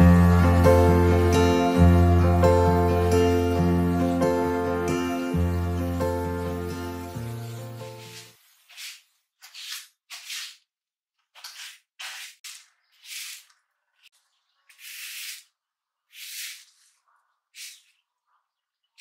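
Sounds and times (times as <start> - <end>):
broom sweeping on stone: 6.4 - 10.6, 14.7 - 15.5, 16.1 - 17.0.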